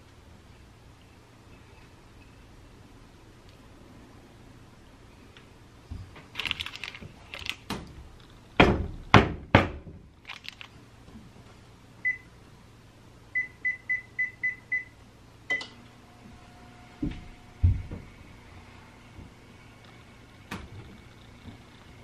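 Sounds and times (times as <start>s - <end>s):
oven control panel beeps: 12.0s - 12.3s, 13.4s - 15.8s.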